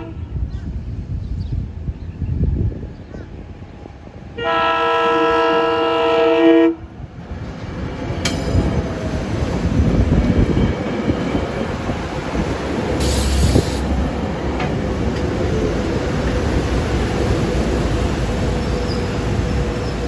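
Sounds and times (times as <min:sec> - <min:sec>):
train horn blast: 0:00.0 - 0:00.5, 0:04.4 - 0:06.9
train wheels rumbling on rails: 0:00.0 - 0:20.0.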